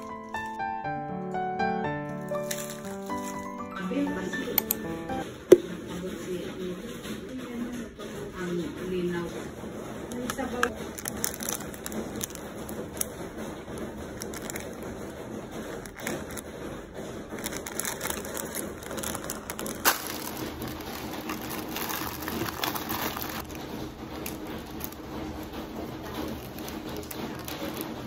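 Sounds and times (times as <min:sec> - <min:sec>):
plastic packaging crinkling: 0:02.0 - 0:04.1, 0:10.0 - 0:28.0
sachet tearing open: 0:02.2 - 0:03.6, 0:10.8 - 0:13.1, 0:17.3 - 0:23.5.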